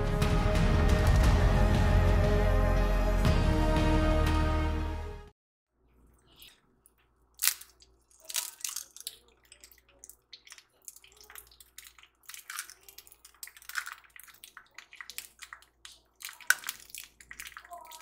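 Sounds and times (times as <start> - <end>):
eggshell cracking: 6.8 - 18.0.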